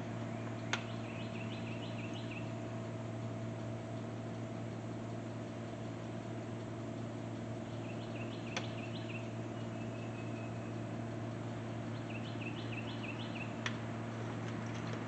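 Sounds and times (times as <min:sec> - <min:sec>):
low hum: 0:00.0 - 0:15.0
songbird chirping: 0:00.3 - 0:02.8, 0:07.6 - 0:13.7
sharp clicks: 0:08.3 - 0:09.3.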